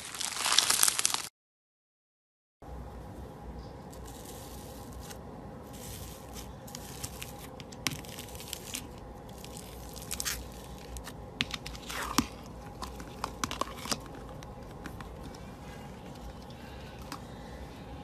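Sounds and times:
slime crackling and popping: 0.0 - 1.3, 6.8 - 12.4.

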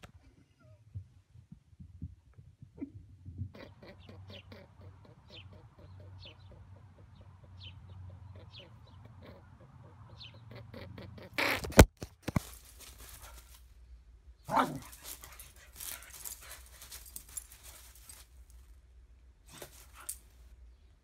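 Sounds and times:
scuffling in snow: 12.3 - 13.7, 14.6 - 18.7
small dog barking: 14.5 - 18.2, 19.5 - 20.3.

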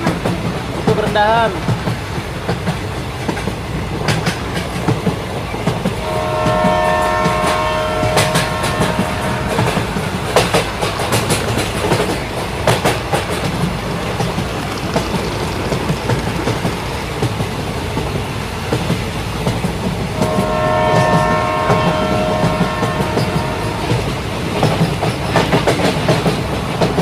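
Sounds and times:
wheels clicking over rail joints: 0.0 - 27.0
electronic horn tone: 6.0 - 10.1, 20.2 - 24.1.

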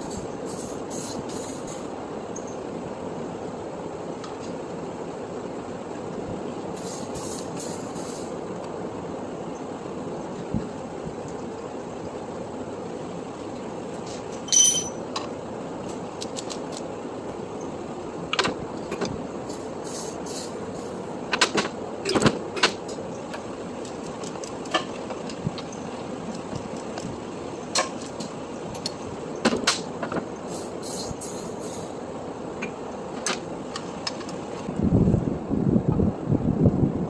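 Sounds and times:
steady background noise: 0.0 - 37.0
metal tools clinking: 14.0 - 15.1.

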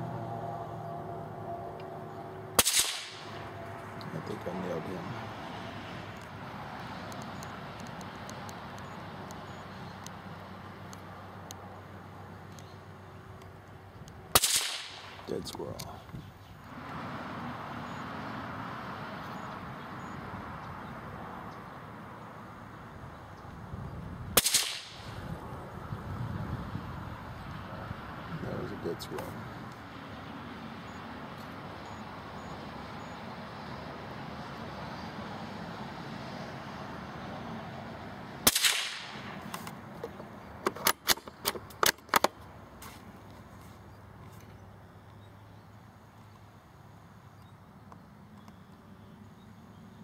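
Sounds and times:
steady background hiss: 0.7 - 20.4
gunshot: 2.6 - 3.3, 14.4 - 15.1, 24.4 - 25.0, 38.5 - 39.2
small sharp clicks: 6.2 - 9.4.

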